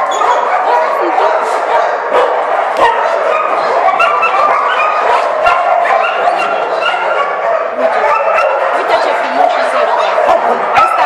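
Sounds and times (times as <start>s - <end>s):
dogs barking and yelping: 0.0s - 11.0s.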